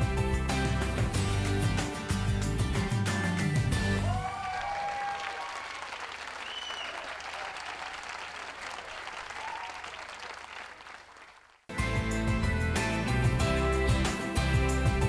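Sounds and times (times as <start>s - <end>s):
audience applauding: 3.9s - 11.7s.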